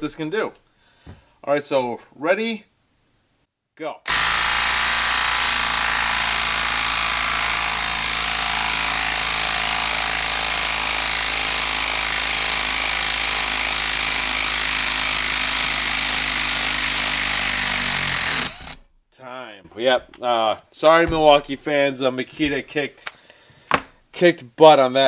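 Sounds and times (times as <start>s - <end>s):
impact driver hammering: 4.1s - 18.8s.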